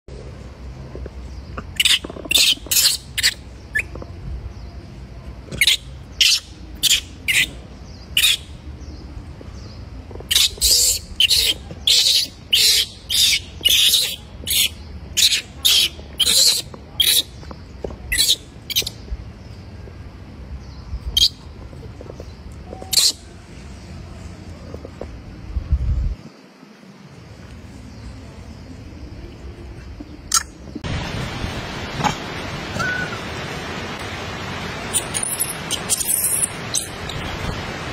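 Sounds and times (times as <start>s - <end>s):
baby monkey shrill squeals: 1.8s - 3.9s, 5.6s - 7.5s, 8.2s - 8.4s, 10.3s - 17.3s, 18.1s - 18.9s, 22.8s - 23.2s, 34.9s - 36.9s.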